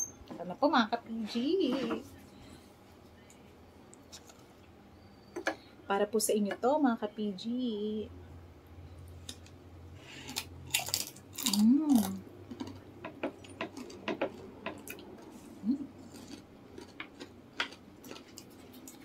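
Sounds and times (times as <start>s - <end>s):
crunching fried chicken skin: 9.2s - 15.1s, 16.0s - 19.0s.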